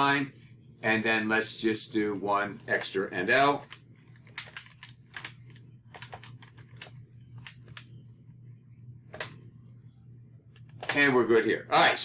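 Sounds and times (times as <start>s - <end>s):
faint low hum: 0.0s - 12.0s
computer keyboard typing: 2.7s - 8.0s, 9.1s - 9.4s, 10.5s - 11.1s.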